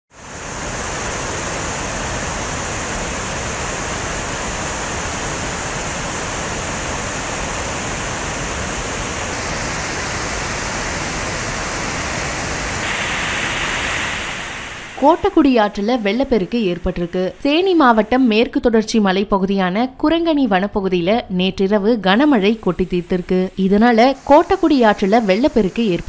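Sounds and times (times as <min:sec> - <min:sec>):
water rushing over dam: 0:00.2 - 0:18.3.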